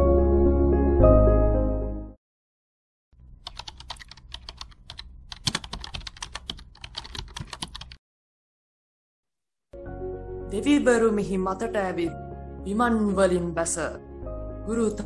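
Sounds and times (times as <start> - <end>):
keyboard key clicks: 3.4 - 8.0.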